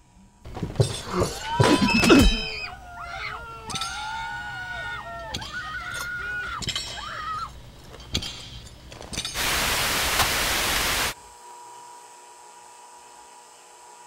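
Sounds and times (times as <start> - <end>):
high-pitched wavering cries: 1.1 - 7.6
tv static hiss: 9.4 - 11.2.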